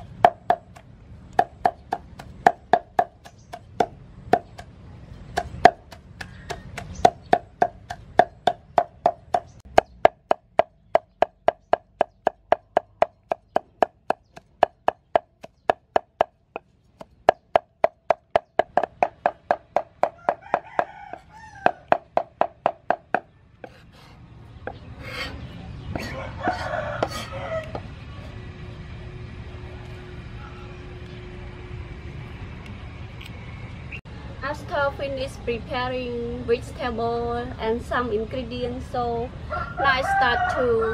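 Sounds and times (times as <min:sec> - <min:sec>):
cleaver chopping on wooden board: 0:00.0 - 0:00.8, 0:01.4 - 0:04.7, 0:05.3 - 0:23.8
rooster crowing: 0:20.0 - 0:22.1, 0:26.0 - 0:28.4, 0:39.4 - 0:40.9.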